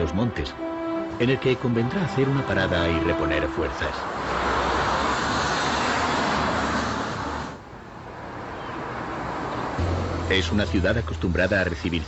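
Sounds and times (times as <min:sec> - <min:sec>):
street traffic noise: 0:00.0 - 0:12.0
car driving past: 0:03.9 - 0:07.6, 0:09.0 - 0:10.9.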